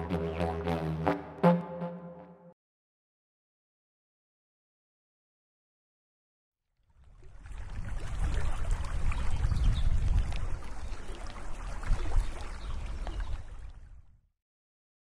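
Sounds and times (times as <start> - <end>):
wind and water rushing: 7.0 - 14.0.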